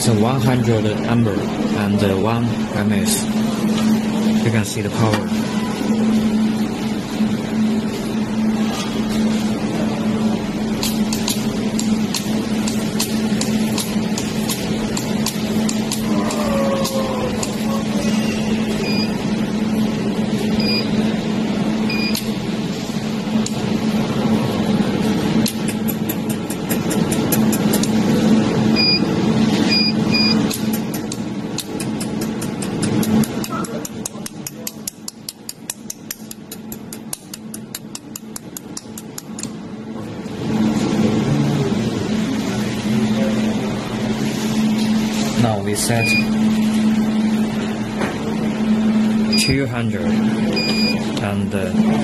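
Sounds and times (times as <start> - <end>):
laser welding machine humming: 0.0 - 52.0
short high-pitched beeps: 20.6 - 20.9, 28.8 - 29.1, 29.7 - 30.5, 46.0 - 46.4, 50.6 - 51.0.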